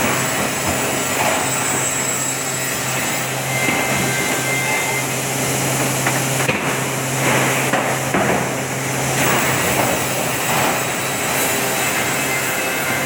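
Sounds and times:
sanding machine running: 0.0 - 7.7, 8.7 - 13.0.

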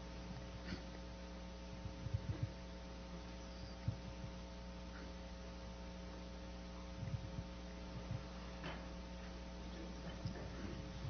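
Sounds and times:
electrical mains hum: 0.0 - 11.0
dull low thumps: 1.2 - 4.7, 6.8 - 11.0.

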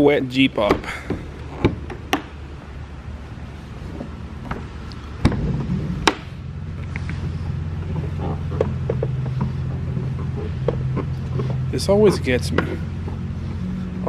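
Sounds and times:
steady low hum: 0.0 - 14.0
rubber hood latches clacking: 0.5 - 2.5, 3.8 - 13.2
car hood being handled: 0.6 - 2.6, 3.6 - 13.3.

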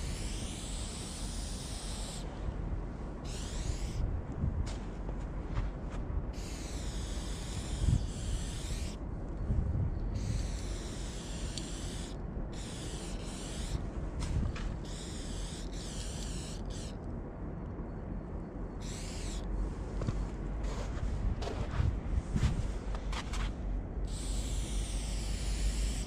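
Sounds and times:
spray paint can hissing: 0.0 - 2.2, 3.3 - 4.0, 6.4 - 9.0, 10.2 - 13.8, 14.8 - 16.9, 24.1 - 26.0
low rumble: 19.4 - 24.2.

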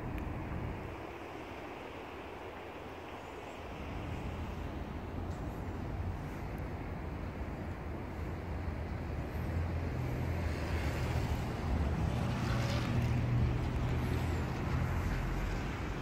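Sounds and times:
city background rumble: 0.0 - 16.0.

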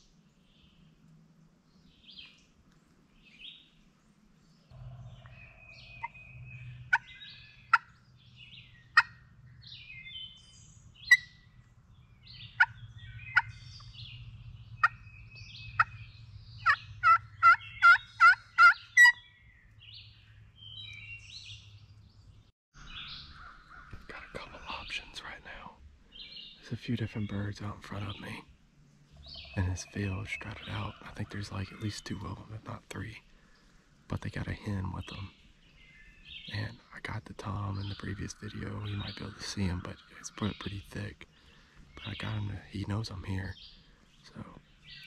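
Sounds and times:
songbirds chirping faintly: 0.0 - 45.0
turkey clucking and yelping: 6.9 - 7.1, 9.0 - 9.2, 15.7 - 16.0, 16.6 - 19.2.

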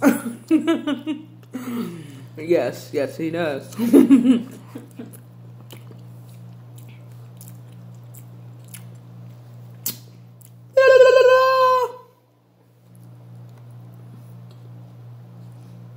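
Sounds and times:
steady low hum: 0.0 - 15.9
chewing clicks: 5.1 - 10.6.

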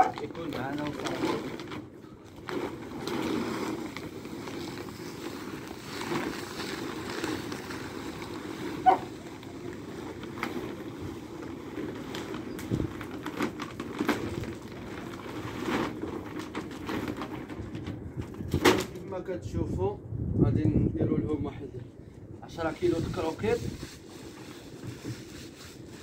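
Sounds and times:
dry kibble pouring onto plastic: 0.0 - 1.6, 2.3 - 17.2
paper sack rustling: 0.0 - 19.1, 22.5 - 26.0.

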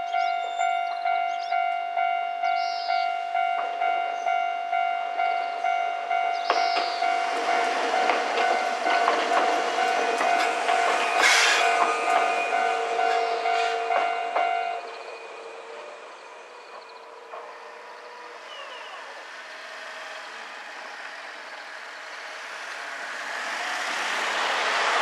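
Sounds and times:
level-crossing electronic alarm: 0.0 - 16.6
electric train passing: 0.0 - 25.0
quiet street noise: 0.0 - 25.0
train wheel squeal: 6.2 - 24.6
train wheel clicks: 6.5 - 15.0.

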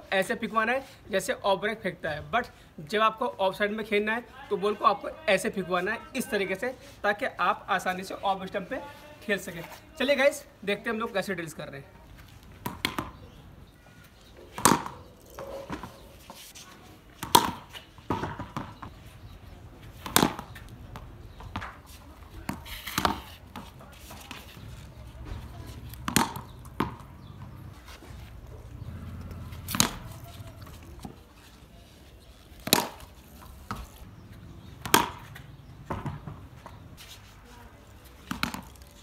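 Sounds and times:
cricket bat hitting ball: 12.6 - 13.2, 14.5 - 15.9, 17.2 - 18.9, 20.0 - 21.8, 25.2 - 27.5, 28.8 - 30.7, 32.6 - 33.1, 34.8 - 36.4.

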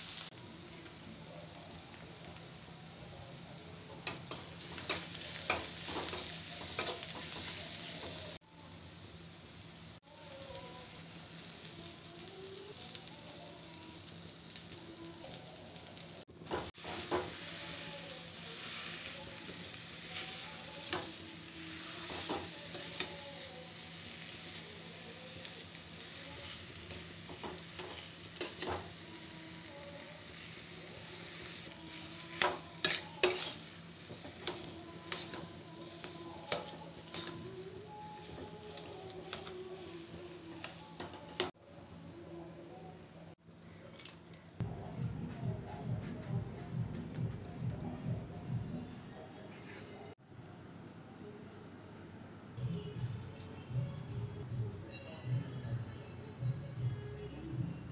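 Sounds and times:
food sizzling in oil: 0.0 - 3.0, 3.6 - 41.6
spatula scraping a pan: 30.3 - 37.4.

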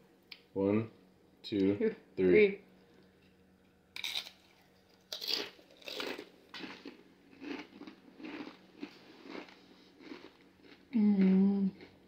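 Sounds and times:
crunching tortilla chip: 4.0 - 10.9.

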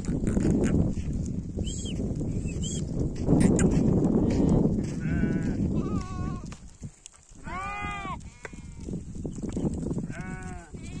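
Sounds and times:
sheep bleating: 4.3 - 6.4, 7.4 - 8.2, 10.0 - 11.0.

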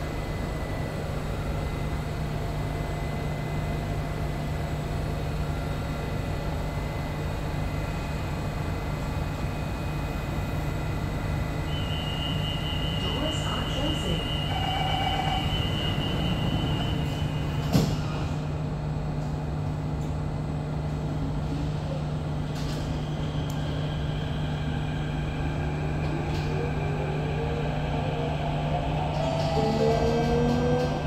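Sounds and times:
train car low hum: 0.0 - 31.0
rising whine: 11.4 - 18.4, 22.6 - 31.0.

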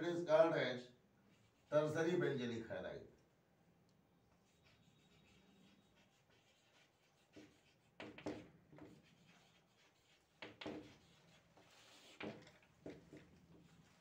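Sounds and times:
chalk scratching on a blackboard: 1.3 - 1.9, 4.3 - 14.0.

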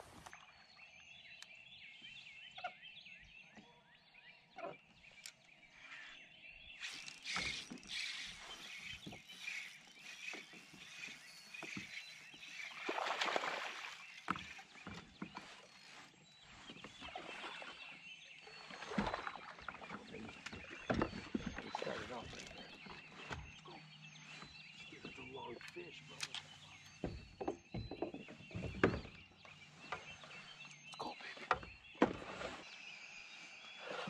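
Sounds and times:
birds chirping: 0.0 - 34.0
water rushing against a kayak: 7.4 - 15.9.

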